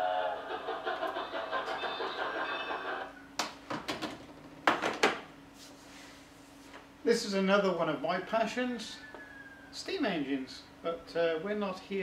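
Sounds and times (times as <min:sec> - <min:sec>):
steam locomotive chuffing: 0:00.0 - 0:03.1
faint steady hum: 0:00.0 - 0:12.0.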